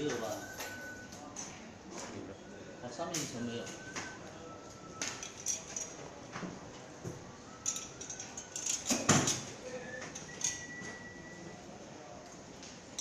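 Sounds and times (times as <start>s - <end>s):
metal shelving clinks and knocks: 7.7s - 9.6s.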